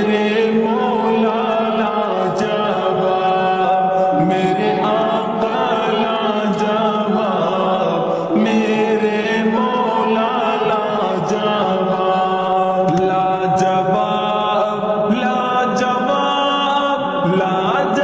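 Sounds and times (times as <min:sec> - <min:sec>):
reverberant devotional singing: 0:00.0 - 0:18.0
low drone: 0:02.8 - 0:06.6.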